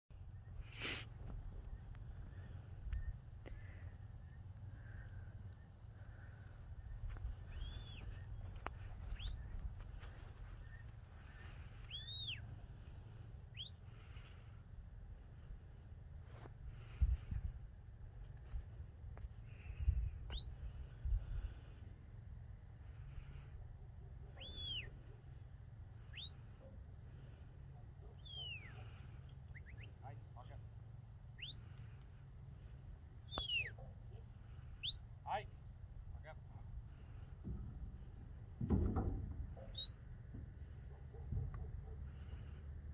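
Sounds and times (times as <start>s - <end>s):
high whistled calls: 7.4s - 8.4s, 9.0s - 9.6s, 11.8s - 12.5s, 13.5s - 13.8s, 24.4s - 25.0s, 26.0s - 26.6s, 28.2s - 28.9s, 29.5s - 30.1s, 31.3s - 31.7s, 33.2s - 33.8s, 34.8s - 35.1s, 39.6s - 40.0s
person whistling commands: 33.3s - 33.8s.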